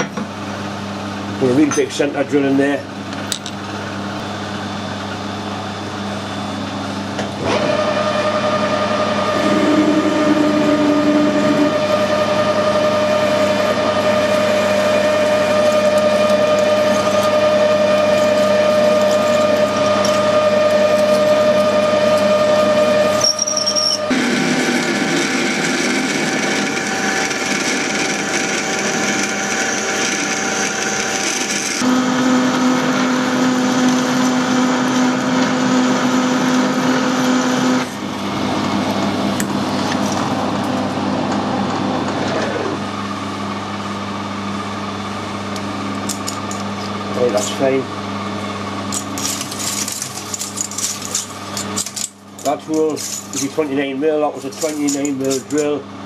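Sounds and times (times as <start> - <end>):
lathe gearing whine: 0.0 - 56.0
drill cutting into metal bar: 7.4 - 37.9.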